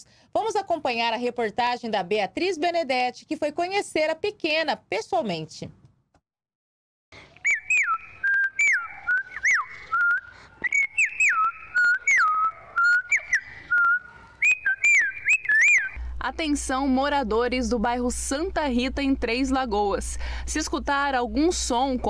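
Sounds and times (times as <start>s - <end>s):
girl whistling birdsong imitation: 7.4s - 16.0s.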